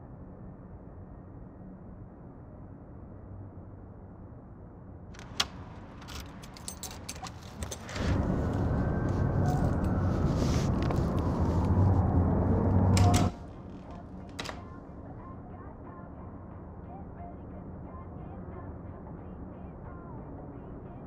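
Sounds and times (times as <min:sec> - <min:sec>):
low hum: 0:00.0 - 0:21.0
keys jangling in a deadbolt: 0:05.2 - 0:08.2
door opening: 0:05.2 - 0:11.8, 0:12.4 - 0:14.8
traffic noise: 0:05.2 - 0:14.7.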